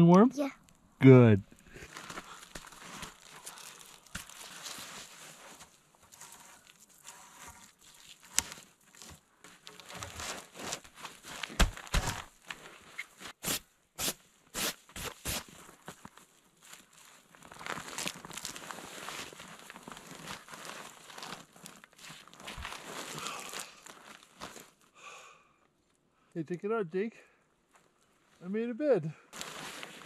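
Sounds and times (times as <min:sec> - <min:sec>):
tarp rustling and crinkling: 0:01.6 - 0:13.6, 0:14.5 - 0:24.9, 0:29.3 - 0:30.0.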